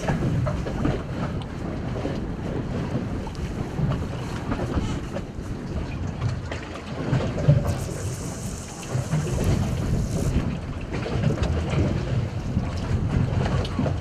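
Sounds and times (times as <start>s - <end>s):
wind buffeting microphone: 0.0s - 14.0s
fishing line running off reel: 7.4s - 10.6s.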